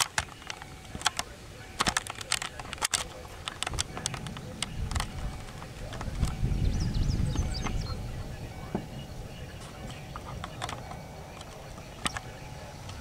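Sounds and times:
sharp clicks and taps: 0.0 - 6.4
wind buffeting microphone: 0.0 - 13.0.

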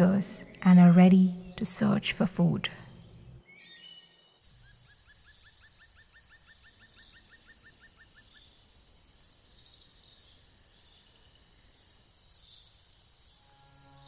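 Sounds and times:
insects chirping: 4.2 - 14.0.

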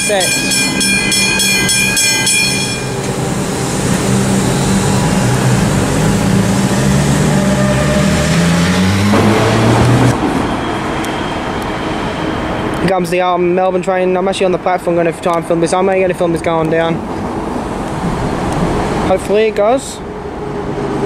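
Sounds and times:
level crossing bells ringing: 0.0 - 3.1
electric train rumbling past: 0.0 - 21.0.

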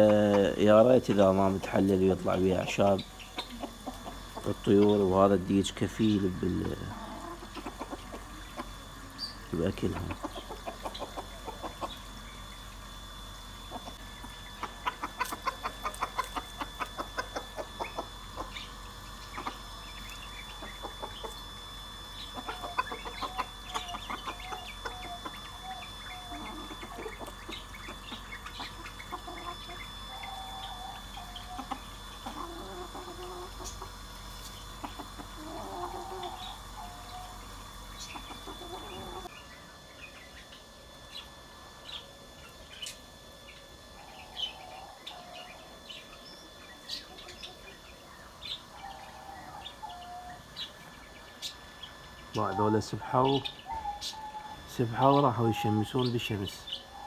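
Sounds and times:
small birds chirping: 0.0 - 57.0
rooster clucking: 2.8 - 5.3, 6.6 - 9.0, 9.6 - 12.2, 13.6 - 19.8, 20.4 - 21.4, 22.2 - 34.0, 34.7 - 39.3.

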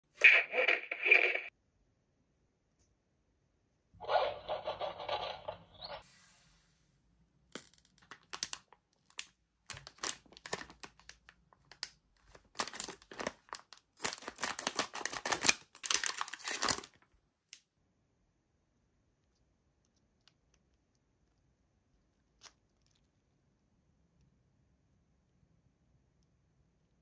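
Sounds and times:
quick clicks and crackles: 7.5 - 17.1
packaging crinkling and tearing: 7.6 - 17.1.

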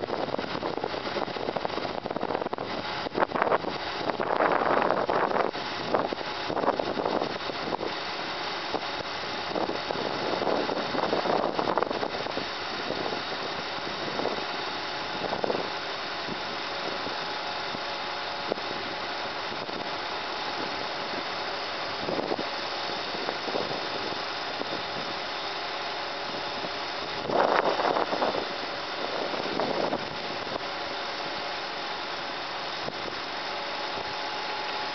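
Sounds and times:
faint steady whine: 0.0 - 34.9
truck engine running: 0.0 - 34.9.

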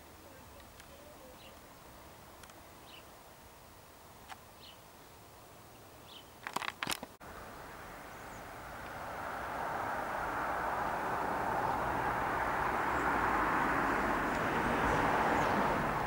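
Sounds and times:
sharp clicks: 6.4 - 7.2.

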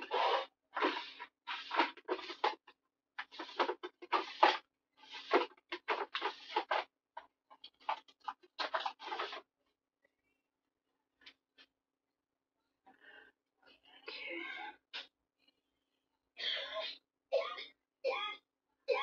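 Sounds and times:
paper rustling: 0.0 - 6.9, 7.5 - 9.4.

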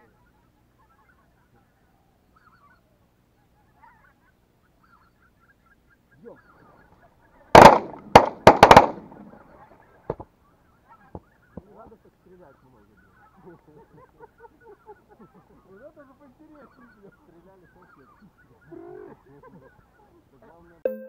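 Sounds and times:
geese honking: 0.0 - 20.8
shotgun shots: 7.5 - 9.3.

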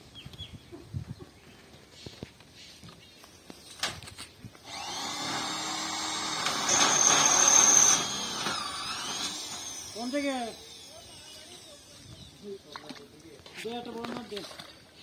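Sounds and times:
small motor whining: 4.6 - 12.7.

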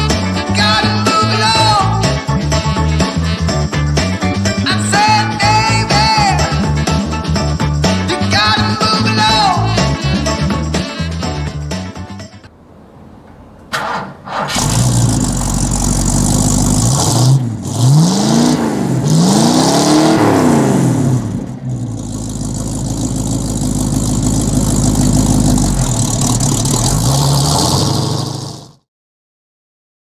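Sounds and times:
engine idling and revving: 1.8 - 11.9, 13.8 - 28.9
engine cranking and starting: 13.7 - 20.0, 21.0 - 28.8.

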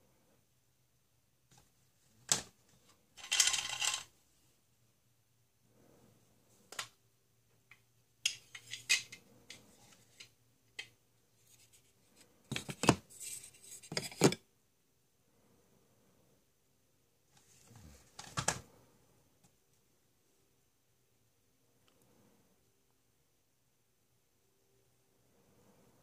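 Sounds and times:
plastic toys clicking and clattering: 3.2 - 4.1, 8.2 - 10.9.

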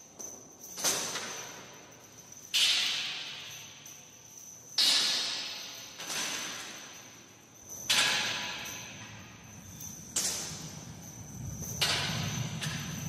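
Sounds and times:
low rumble: 9.0 - 13.0.

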